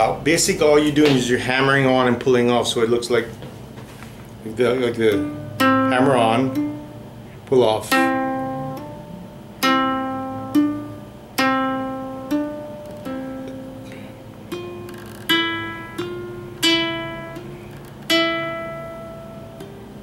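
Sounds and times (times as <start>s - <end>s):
ukulele notes: 4.5s - 20.0s.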